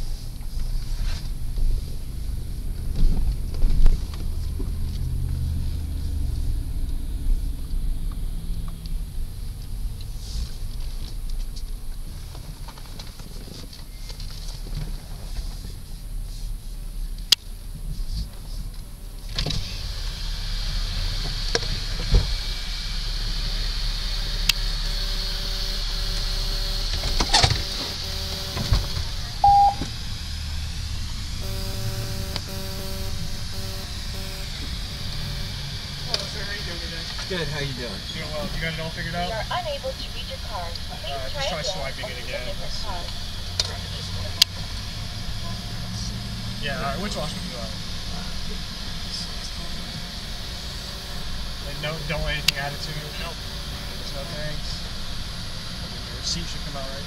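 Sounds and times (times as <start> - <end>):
car engine and road rumble: 0.0 - 57.0
short electronic beep: 24.6 - 29.9, 31.4 - 35.6.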